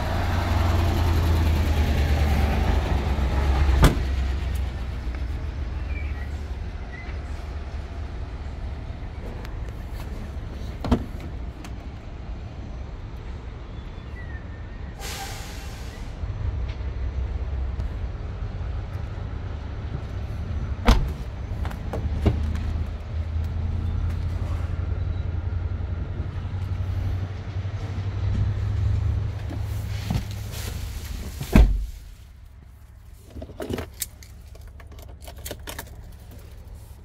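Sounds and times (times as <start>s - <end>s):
car door shutting: 20.8s - 21.2s, 31.4s - 31.9s.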